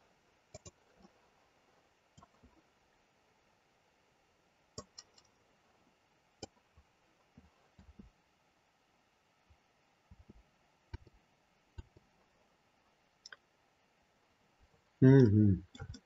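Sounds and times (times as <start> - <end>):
faint computer mouse clicks: 0.6 - 1.1.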